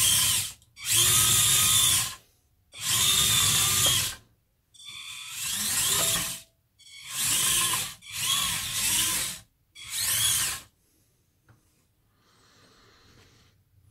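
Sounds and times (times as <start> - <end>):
small electric motors whirring: 0.0 - 2.2, 2.8 - 4.2, 4.8 - 10.7.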